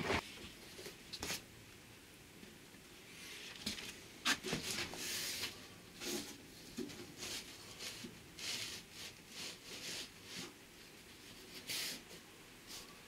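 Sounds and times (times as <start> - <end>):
cardboard rustling and scraping: 3.4 - 10.6.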